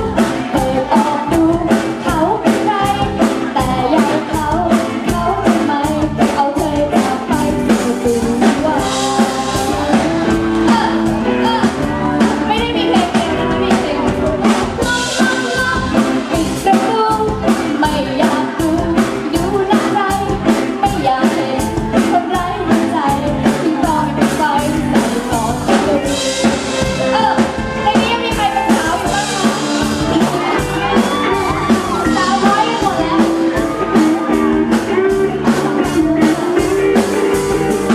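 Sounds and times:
drum kit beat: 0:00.0 - 0:37.9
electric guitar: 0:00.0 - 0:37.9
woman singing into a microphone: 0:00.0 - 0:37.9.

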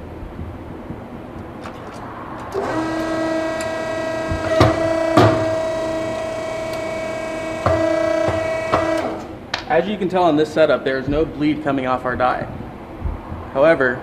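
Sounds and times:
machine hum: 0:00.0 - 0:13.6
press clicks and knocks: 0:02.5 - 0:05.6, 0:07.6 - 0:09.7.

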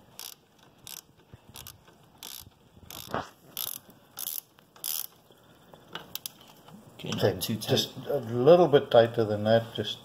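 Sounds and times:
socket ratchet clicking: 0:00.0 - 0:05.2.

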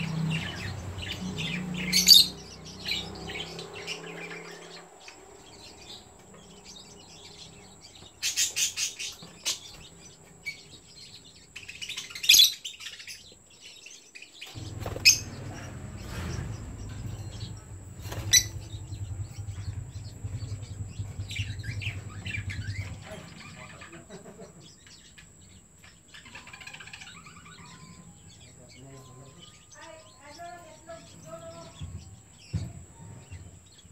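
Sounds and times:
loud high bird calls: 0:00.0 - 0:33.9
lovebirds chirping: 0:00.0 - 0:33.9
low steady hum: 0:14.6 - 0:25.7.

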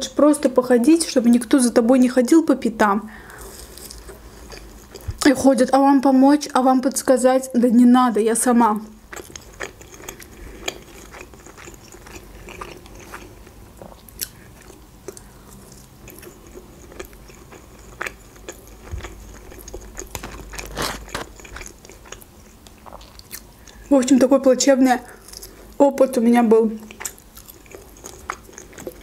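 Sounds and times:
chewing and crunching: 0:03.4 - 0:05.3, 0:09.1 - 0:23.9, 0:26.8 - 0:29.0.

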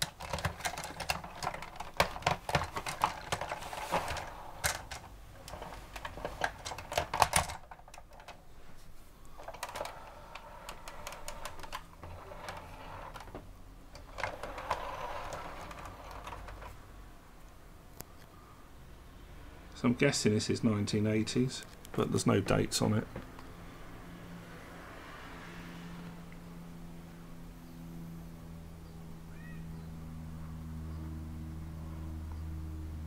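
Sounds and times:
plastic toy crane clicking and rattling: 0:00.0 - 0:08.5, 0:09.2 - 0:16.8
soft handling noise: 0:00.0 - 0:16.9.

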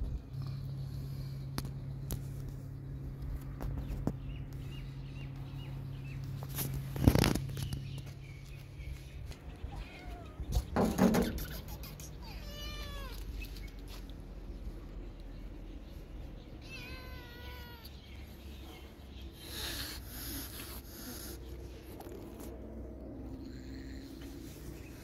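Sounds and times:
low hum: 0:00.0 - 0:12.2.

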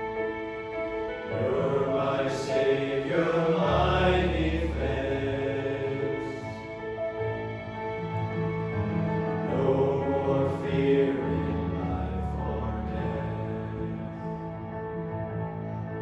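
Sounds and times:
piano chords: 0:00.0 - 0:16.0
men's choir singing: 0:01.3 - 0:06.7, 0:09.4 - 0:14.3.

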